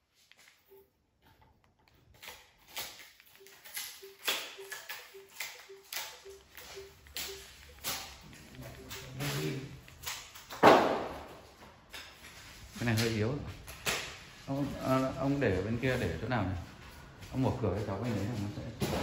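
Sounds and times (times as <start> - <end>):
short low beeps: 3.4 - 9.8.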